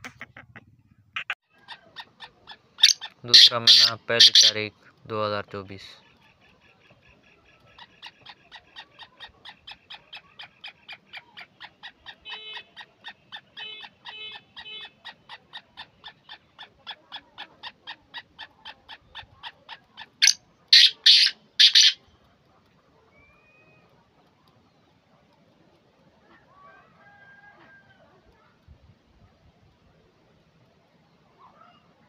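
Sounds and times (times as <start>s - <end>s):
bird harsh call: 2.8s - 4.7s, 20.0s - 22.0s.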